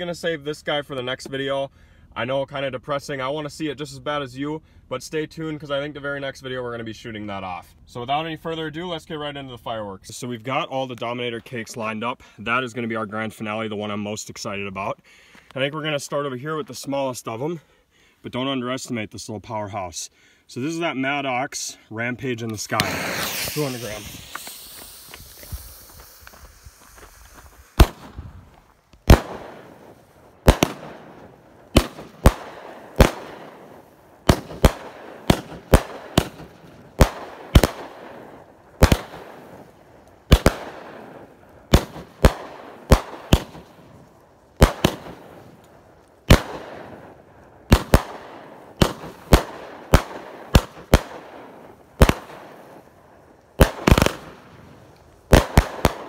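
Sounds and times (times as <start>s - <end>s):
firework cake bangs: 26.8s - 28.3s, 29.0s - 38.2s, 41.7s - 43.8s, 44.6s - 45.3s, 47.7s - 52.6s.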